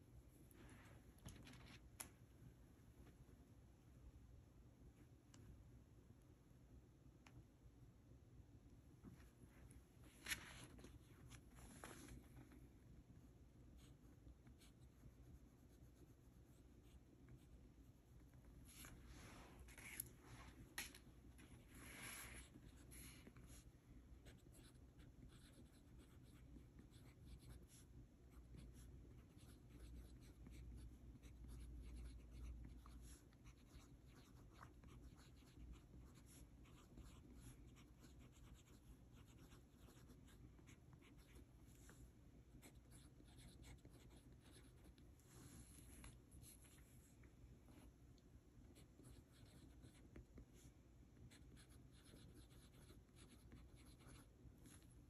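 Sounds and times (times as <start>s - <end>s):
pen nib scratching paper: 51.3s - 54.9s.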